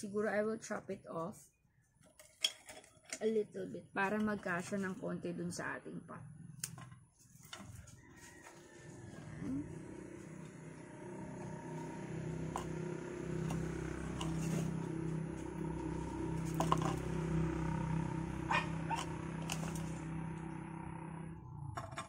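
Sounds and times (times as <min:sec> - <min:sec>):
low motor hum: 0:03.7 - 0:22.0
plastic trowel scraping soil: 0:13.4 - 0:15.6.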